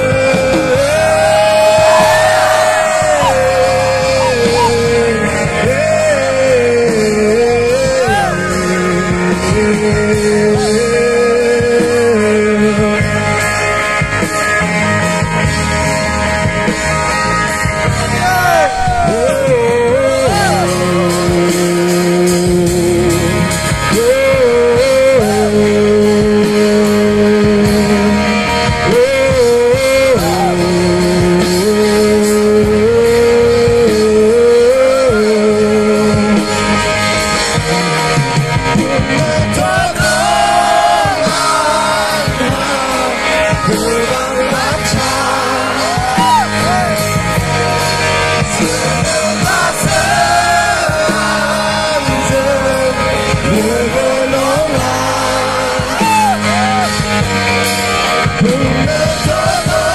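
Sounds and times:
lead vocals singing: 0.0 - 13.4, 18.0 - 59.9
bass guitar: 0.0 - 59.9
drums: 0.0 - 59.9.

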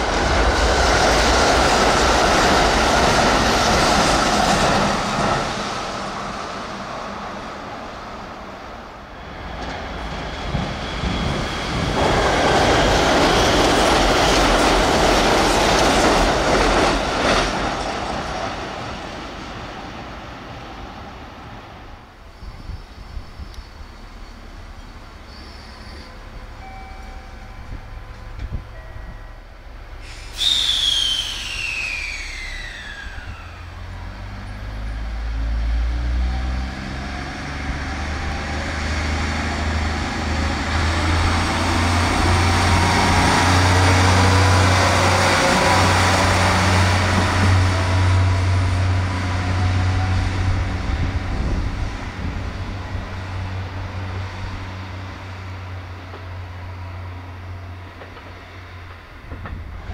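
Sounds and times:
diesel railcar engine drone: 0.0 - 59.9
loud burst with falling whine: 30.1 - 33.9.

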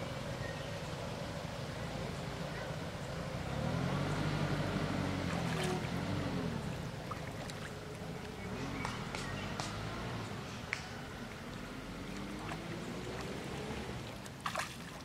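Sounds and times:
water splashing and lapping: 2.8 - 15.0
short sharp splashes: 5.1 - 8.1, 8.7 - 15.0.

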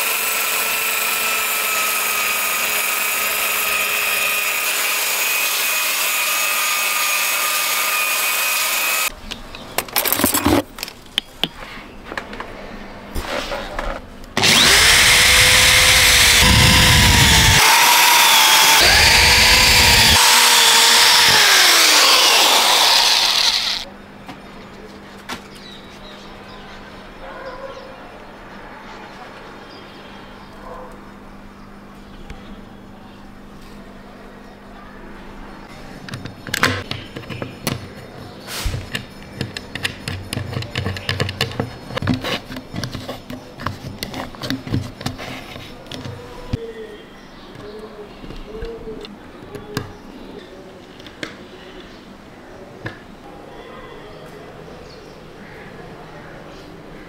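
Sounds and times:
drill driving a screw: 14.4 - 23.9.

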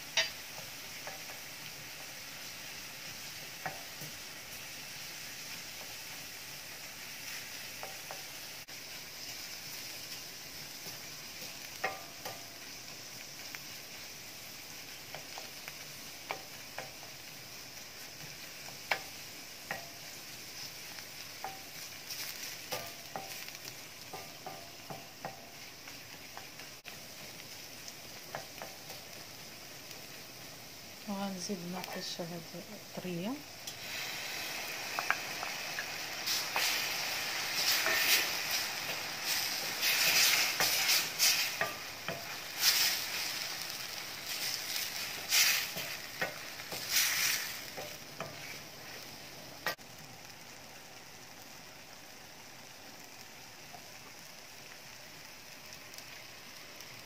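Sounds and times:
onion sizzling in oil: 0.0 - 57.0
wooden spoon scraping a pan: 34.9 - 49.3.

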